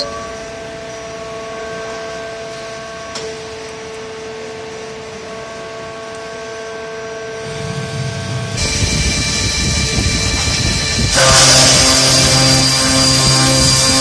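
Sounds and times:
circular saw machine humming: 7.1 - 14.0.

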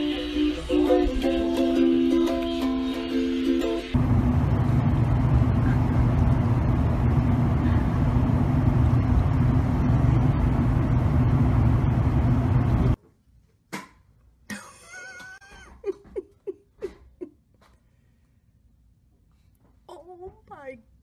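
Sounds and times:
ukulele tune: 0.0 - 4.0.

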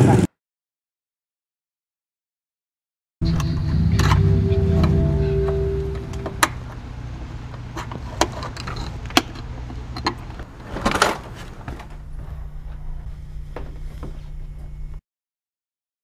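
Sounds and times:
low steady hum: 3.2 - 10.5.

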